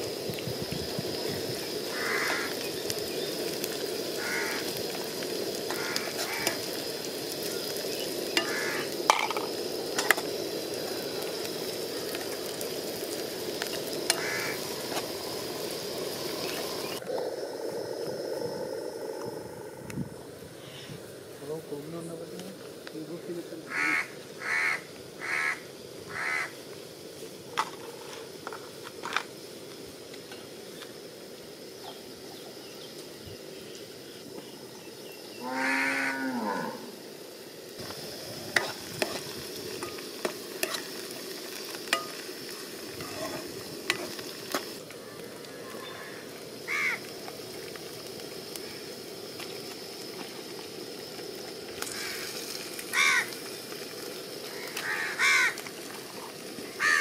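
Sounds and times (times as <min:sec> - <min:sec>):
food sizzling in a pan: 0:00.0 - 0:57.0
crows cawing: 0:01.9 - 0:02.6, 0:04.1 - 0:04.9, 0:05.7 - 0:06.7, 0:08.4 - 0:09.0, 0:14.1 - 0:14.6, 0:23.7 - 0:26.6, 0:35.4 - 0:36.2, 0:45.9 - 0:47.1, 0:51.9 - 0:52.3, 0:52.9 - 0:53.4, 0:54.5 - 0:55.6, 0:56.7 - 0:57.0
cow mooing: 0:35.4 - 0:37.0
spatula stirring in a pan: 0:37.9 - 0:44.8.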